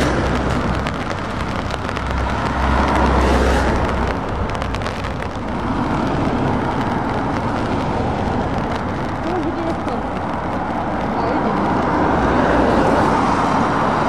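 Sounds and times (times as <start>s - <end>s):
truck diesel engines: 0.0s - 6.8s
tyre and road noise: 0.0s - 14.0s.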